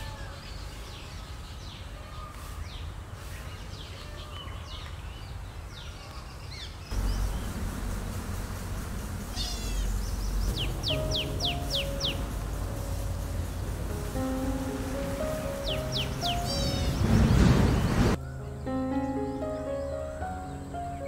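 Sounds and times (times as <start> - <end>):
birds chirping and whistling: 6.3 - 18.2
low rumble: 6.9 - 18.2
squealing bird call: 9.3 - 12.2, 15.6 - 17.8.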